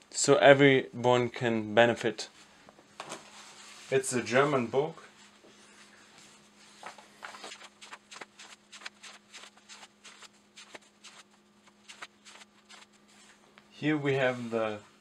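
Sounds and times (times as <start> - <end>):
paper pages flicking and rustling: 6.8 - 13.3.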